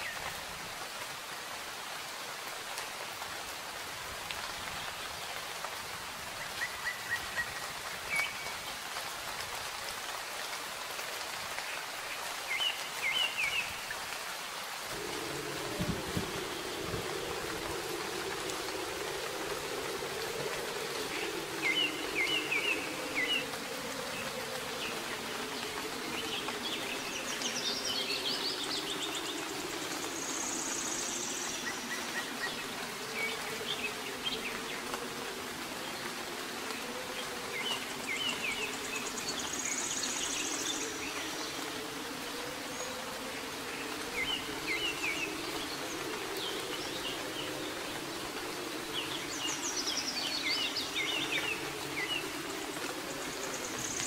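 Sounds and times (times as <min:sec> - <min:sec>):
soft rain: 0:00.0 - 0:54.0
birds chirping: 0:14.8 - 0:35.6
low wavering drone: 0:14.9 - 0:54.0.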